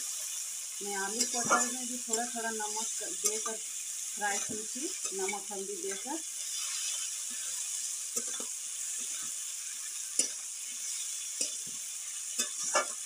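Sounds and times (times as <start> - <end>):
vegetables sizzling in oil: 0.0 - 13.0
metal spatula scraping pan: 1.1 - 2.5, 12.3 - 13.0.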